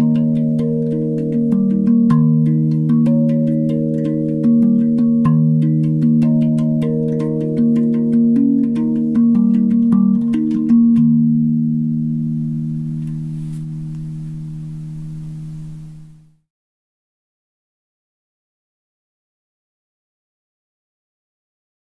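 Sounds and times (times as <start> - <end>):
steel tongue drum ringing notes: 0.0 - 16.4.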